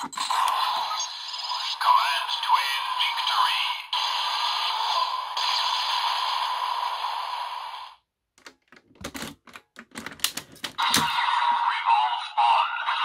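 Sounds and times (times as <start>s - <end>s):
toy belt electronic sound effects: 0.0s - 6.6s, 10.8s - 13.0s
plastic clicks and clacks: 8.4s - 11.1s.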